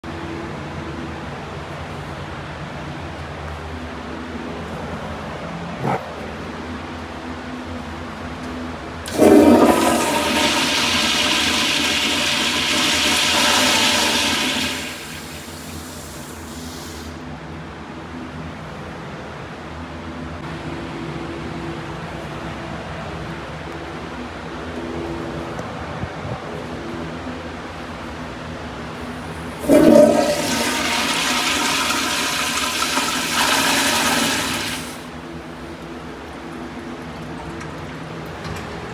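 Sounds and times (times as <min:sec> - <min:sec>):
toilet flushing: 0:09.0 - 0:17.2, 0:29.5 - 0:35.2
high hiss of flush valve: 0:09.1 - 0:17.2, 0:33.2 - 0:35.1
water trickling: 0:34.8 - 0:38.9.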